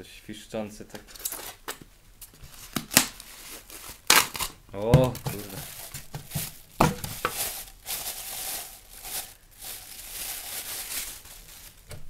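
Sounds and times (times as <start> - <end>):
packaging crinkling: 2.5 - 12.0.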